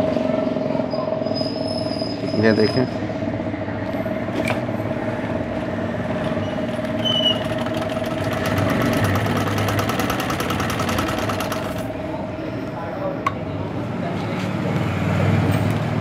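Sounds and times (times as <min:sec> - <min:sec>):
sewing machine whine: 0:06.0 - 0:12.0.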